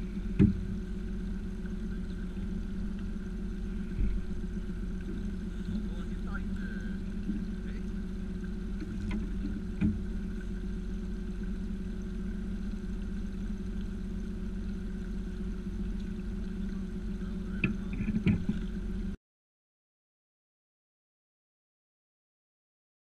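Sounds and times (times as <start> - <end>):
boat motor droning: 0.0 - 19.2
sharp knocks: 0.3 - 0.6.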